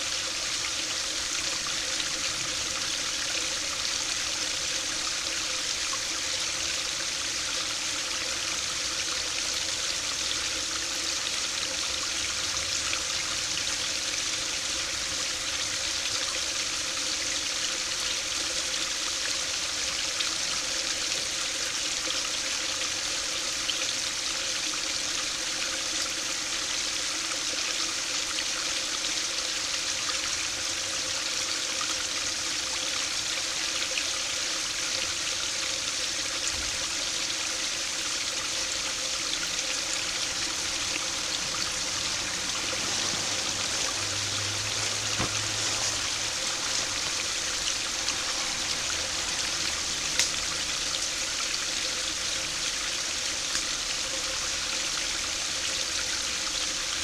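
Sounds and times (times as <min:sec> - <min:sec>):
stream splashing over weir: 0:35.8 - 0:57.0.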